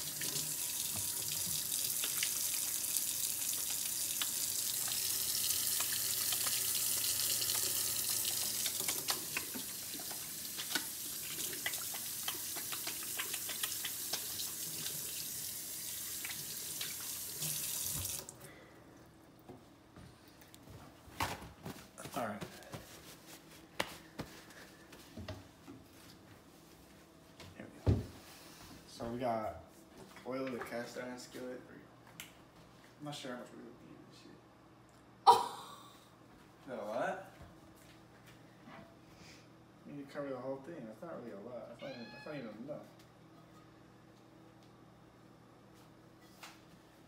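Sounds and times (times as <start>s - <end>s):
faucet running into a steel sink: 0.0s - 18.3s
hands washing under water: 0.0s - 18.3s.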